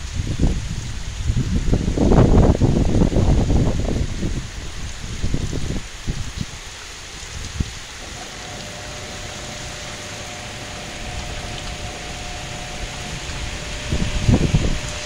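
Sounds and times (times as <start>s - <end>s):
heavy rain pouring: 0.0s - 15.0s
wind rumbling on microphone: 0.0s - 15.0s
faint steady hum: 8.0s - 15.0s.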